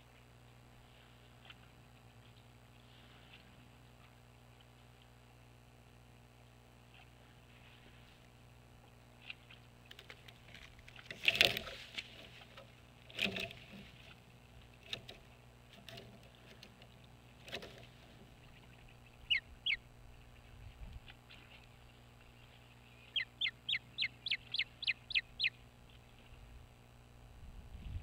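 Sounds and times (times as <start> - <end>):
harsh bird calls: 18.4 - 20.6, 22.3 - 26.2.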